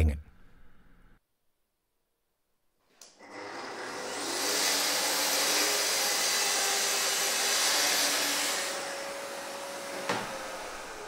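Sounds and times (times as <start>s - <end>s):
circular saw cutting wood: 3.2s - 11.0s.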